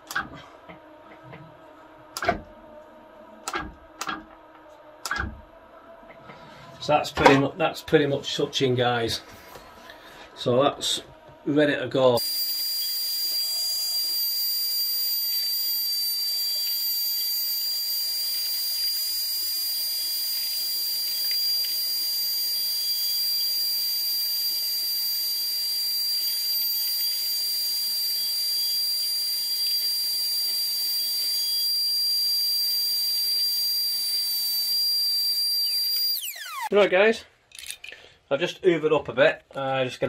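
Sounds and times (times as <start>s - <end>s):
vacuum hose sucking: 12.2s - 36.8s.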